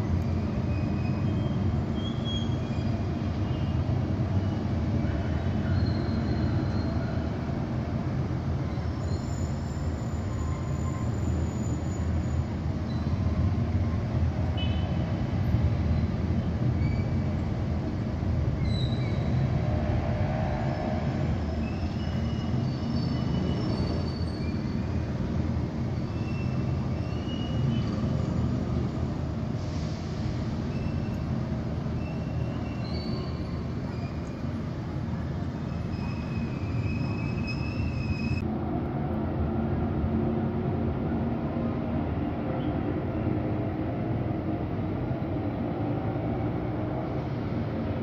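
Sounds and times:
distant city traffic rumble: 0.0s - 48.0s
faint high-pitched squeals: 0.4s - 7.5s, 8.6s - 15.1s, 35.6s - 38.4s.

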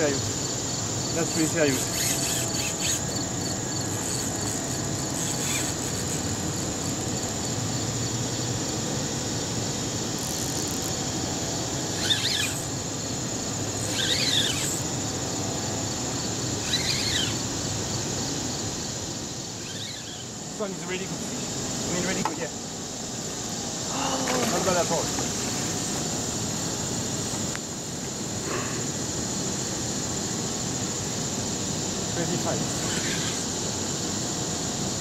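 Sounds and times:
high insect buzz: 0.0s - 35.0s
short squealing chirps: 1.3s - 7.1s, 11.8s - 12.8s, 13.7s - 14.9s, 16.6s - 17.5s, 19.6s - 20.4s, 32.7s - 33.5s.

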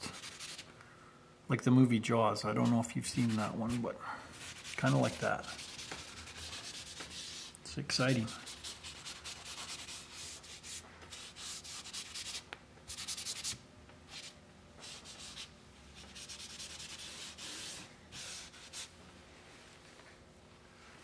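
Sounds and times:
hand rubbing on paper: 0.1s - 0.7s, 2.7s - 18.9s.

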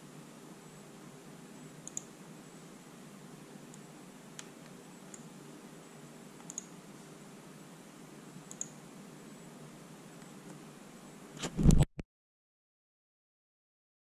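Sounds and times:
faint steady hum: 0.0s - 11.8s
computer mouse clicks: 1.8s - 2.1s, 6.4s - 6.8s, 8.5s - 8.8s.

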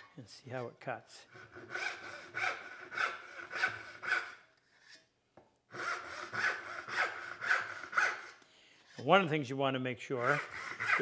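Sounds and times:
hand saw cutting wood: 1.3s - 4.4s, 5.7s - 8.4s, 10.2s - 11.0s.

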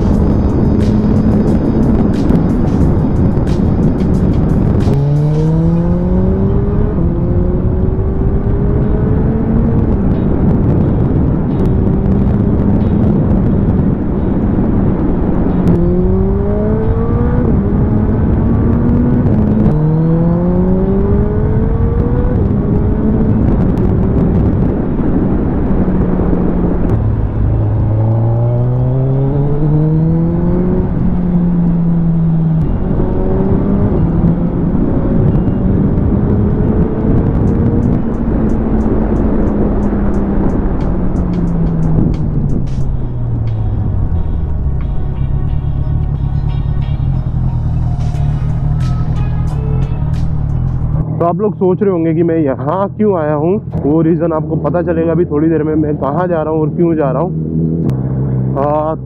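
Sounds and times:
motorcycle engine revving through gears: 0.0s - 44.8s, 57.0s - 58.7s
wind noise: 0.0s - 59.0s.

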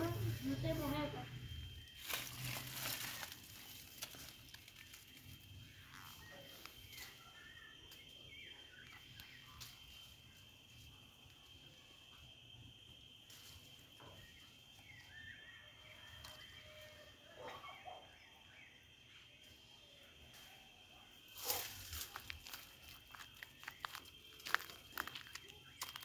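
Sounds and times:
high insect tone: 0.0s - 26.0s
faint bird chirps: 4.9s - 10.8s, 14.0s - 26.0s.

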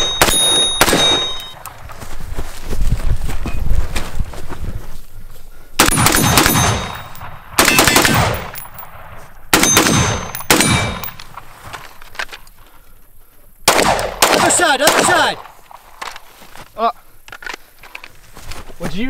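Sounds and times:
gunshots: 0.0s - 1.5s, 5.8s - 11.5s, 13.7s - 15.6s
steel plate targets ringing: 0.0s - 1.6s, 6.0s - 8.8s, 9.6s - 11.2s.

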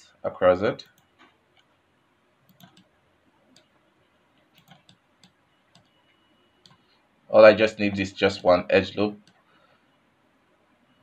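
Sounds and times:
computer mouse clicks: 2.5s - 2.9s, 3.5s - 3.7s, 4.5s - 6.0s, 6.6s - 6.8s.

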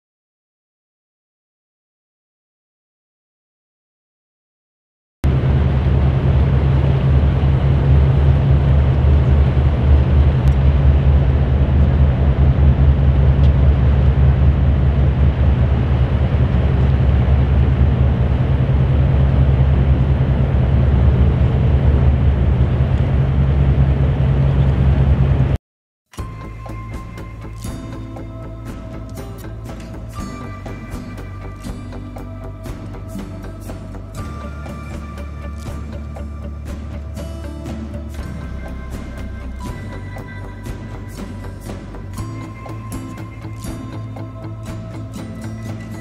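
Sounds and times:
motor boat engine drone: 5.3s - 25.6s, 26.2s - 46.0s
quiet music: 26.2s - 46.0s.

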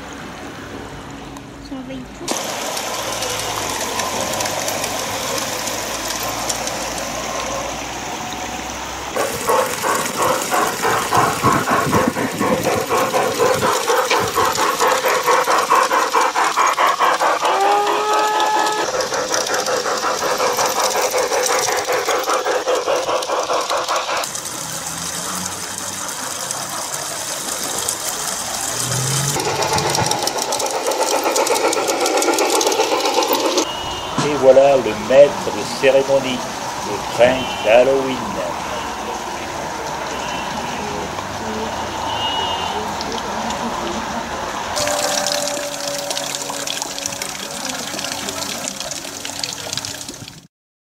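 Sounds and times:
model train running with rattling: 0.0s - 50.5s
short rising tone: 28.4s - 30.8s, 44.8s - 47.8s.

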